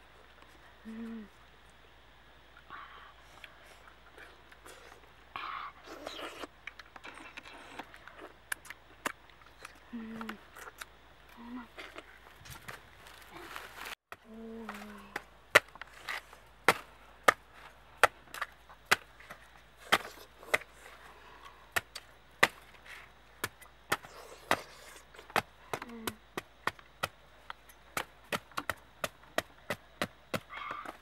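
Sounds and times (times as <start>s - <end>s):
knife chopping fibrous husk: 14.7s - 20.8s.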